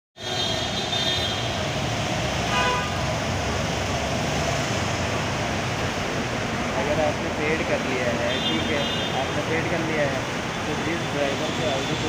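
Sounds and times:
road traffic on wet street: 0:00.2 - 0:12.0
torrential rain: 0:01.5 - 0:08.3
vehicle horn tooting: 0:02.5 - 0:03.1, 0:08.2 - 0:09.3.

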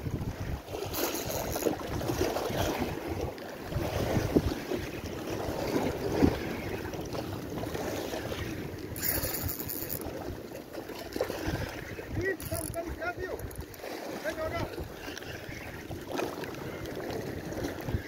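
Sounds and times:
wind buffeting microphone: 0:00.0 - 0:18.0
sea water splashing on rocks: 0:03.7 - 0:18.0.

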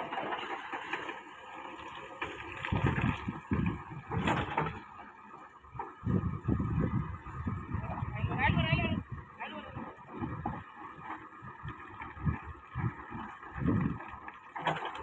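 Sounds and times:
bucket scraping through rocks: 0:00.0 - 0:04.9
diesel engine running under load: 0:00.0 - 0:15.0.

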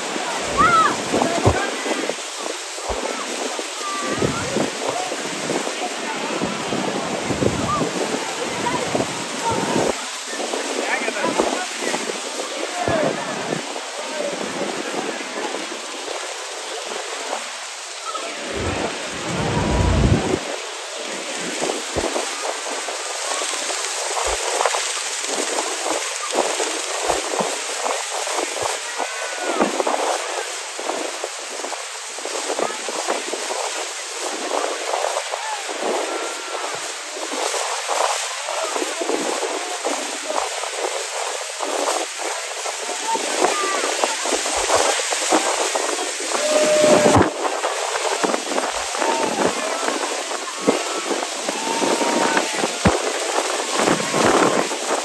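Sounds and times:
waterfall roaring: 0:00.0 - 0:11.6, 0:15.2 - 0:31.0, 0:34.5 - 0:55.0
wind on microphone: 0:00.1 - 0:11.5, 0:18.2 - 0:20.6, 0:30.9 - 0:55.0
heavy low rumble: 0:18.4 - 0:20.4.

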